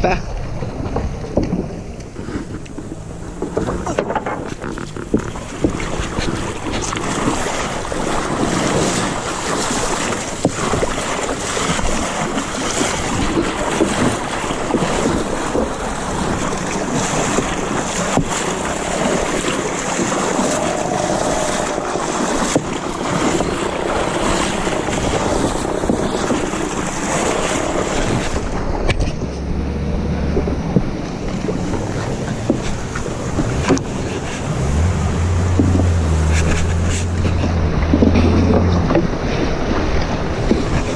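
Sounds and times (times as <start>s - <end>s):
river water rushing and splashing: 0.0s - 40.9s
wind noise on microphone: 0.2s - 40.9s
low rumble: 19.7s - 24.3s.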